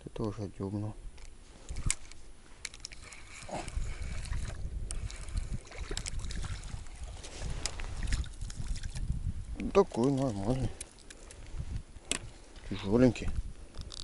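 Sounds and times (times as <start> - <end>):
wind buffeting microphone: 3.0 - 14.0.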